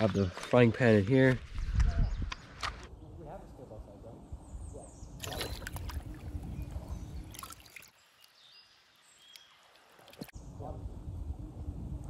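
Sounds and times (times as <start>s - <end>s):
creek water splashing: 5.2s - 10.4s.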